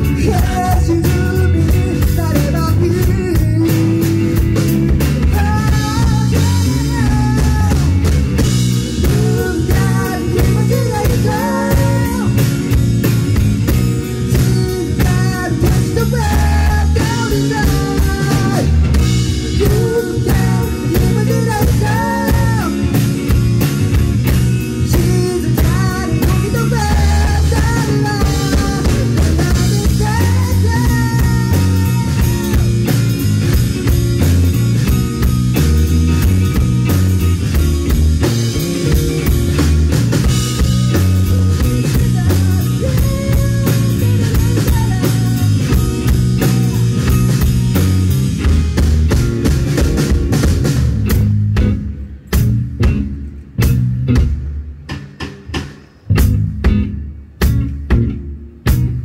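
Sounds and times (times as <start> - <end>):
man singing: 0.0 - 8.1, 8.8 - 12.6, 14.2 - 23.0, 24.8 - 32.9, 41.2 - 47.2
rock band playing live: 0.0 - 59.0.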